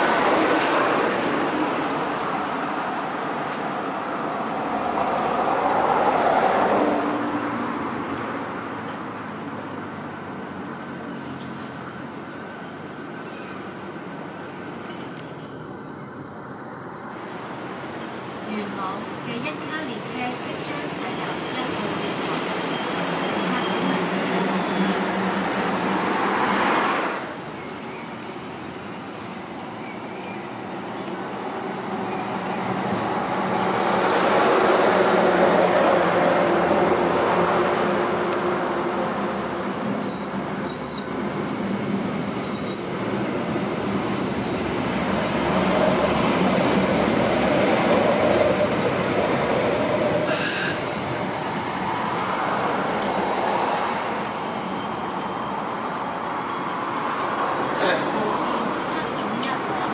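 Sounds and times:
train wheels on rails: 0:00.0 - 0:04.6, 0:17.7 - 0:29.7, 0:30.6 - 0:56.6.

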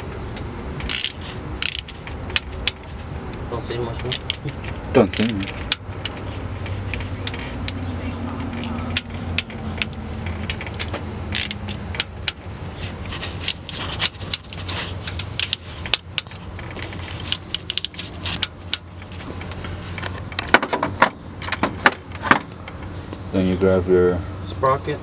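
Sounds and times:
steady low hum: 0:00.0 - 0:25.0
torque wrench clicking on metal: 0:00.8 - 0:02.9, 0:08.6 - 0:12.4.

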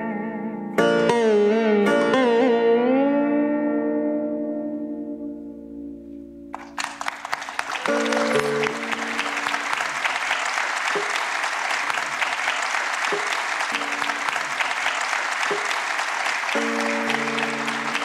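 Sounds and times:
held musical notes: 0:00.7 - 0:18.0
audience applauding: 0:06.6 - 0:18.0.

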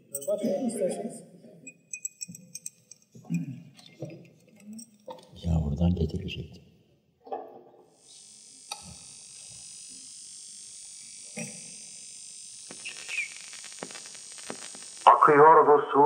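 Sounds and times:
record surface hiss: 0:12.5 - 0:16.0
record crackles and clicks: 0:12.6 - 0:15.3.

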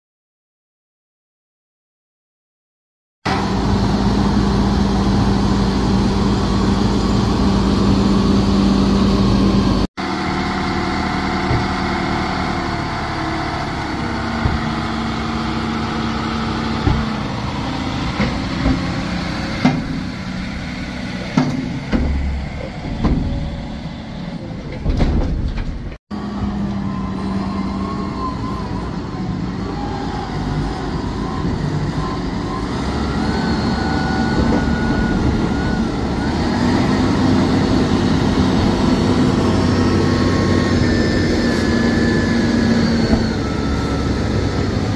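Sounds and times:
tractor engines running: 0:03.3 - 0:44.9
trailer knocks and clanks: 0:11.0 - 0:26.0, 0:33.9 - 0:39.1, 0:42.9 - 0:43.8.

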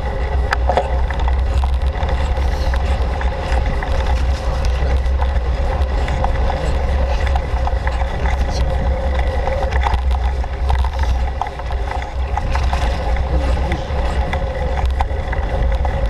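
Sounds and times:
bicycle ticks and rattles: 0:00.0 - 0:16.0
bicycle tyre noise: 0:00.0 - 0:16.0
wind rumble on microphone: 0:00.0 - 0:16.0.

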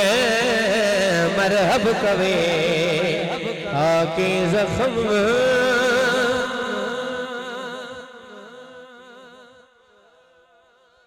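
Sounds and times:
man singing: 0:00.0 - 0:10.2.

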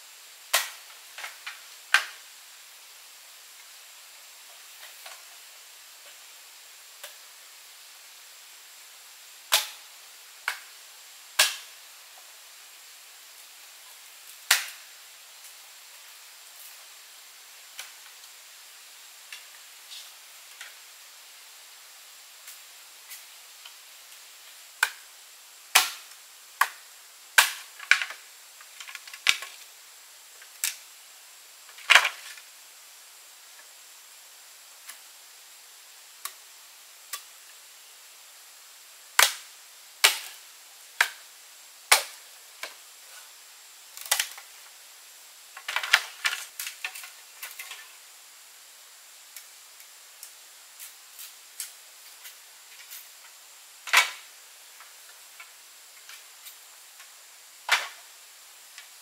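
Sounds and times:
faint steady hiss: 0:00.0 - 0:59.0
sharp cracks and clicks: 0:00.5 - 0:02.2, 0:09.5 - 0:09.8, 0:11.4 - 0:11.7, 0:14.5 - 0:14.8, 0:25.7 - 0:26.8, 0:27.4 - 0:29.6, 0:30.4 - 0:30.8, 0:39.2 - 0:40.4, 0:41.9 - 0:42.8, 0:44.0 - 0:44.5.

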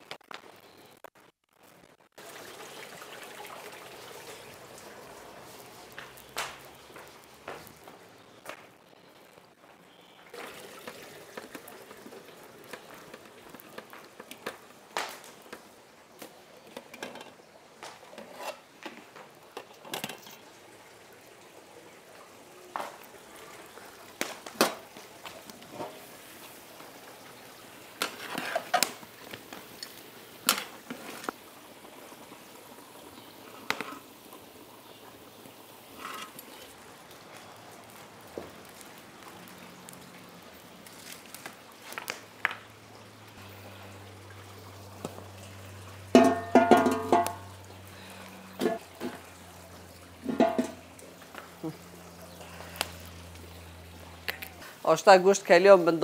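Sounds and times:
faint steady hiss: 0:00.0 - 0:56.0
pots and dishes clinking: 0:16.6 - 0:20.4, 0:25.6 - 0:26.1, 0:28.0 - 0:29.0, 0:46.0 - 0:47.6, 0:48.4 - 0:49.4, 0:50.2 - 0:51.0.

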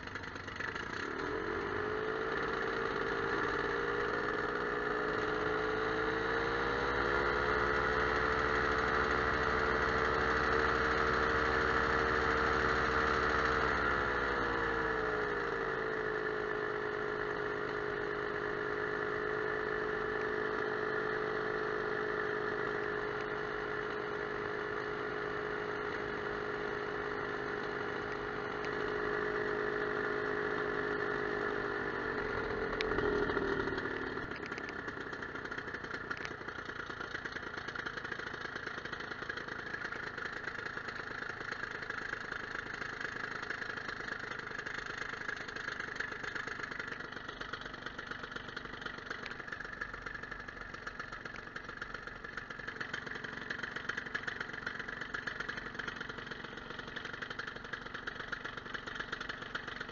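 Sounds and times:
small aircraft engine: 0:00.0 - 0:59.9.

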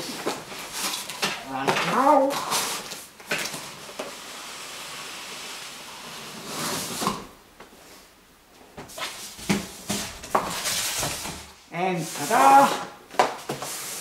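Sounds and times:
cardboard box scraping: 0:04.2 - 0:07.2.

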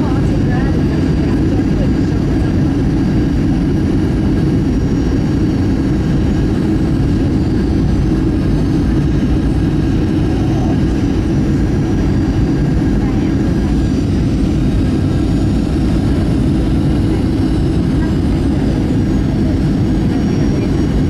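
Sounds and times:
jet engines rumbling: 0:00.0 - 0:21.0
rushing airflow: 0:00.0 - 0:21.0.

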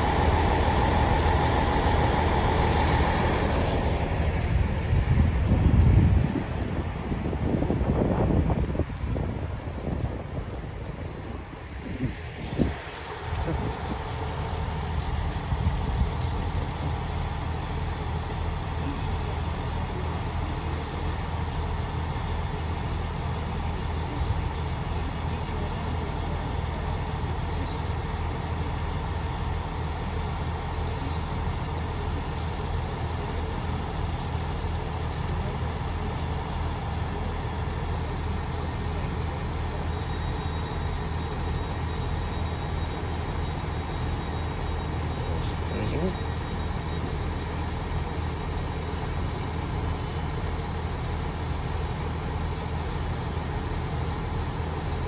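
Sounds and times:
diesel engines idling: 0:00.0 - 0:55.0
train coming to a stop: 0:00.0 - 0:55.0.

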